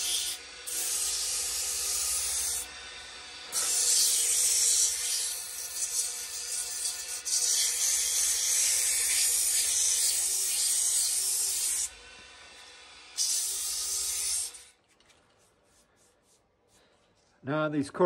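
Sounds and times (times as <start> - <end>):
sandpaper sanding wood on lathe: 0.0 - 2.7, 3.5 - 11.9, 13.2 - 14.7, 15.3 - 16.8.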